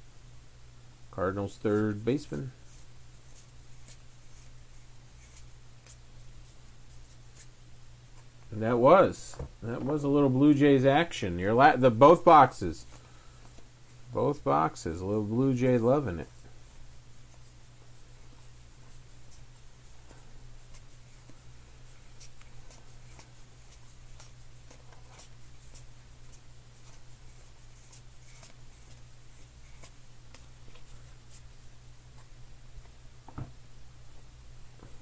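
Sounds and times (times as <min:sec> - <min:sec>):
steady low hum: 0:00.0 - 0:35.0
cards flicking and rubbing: 0:01.6 - 0:07.6, 0:15.6 - 0:33.0.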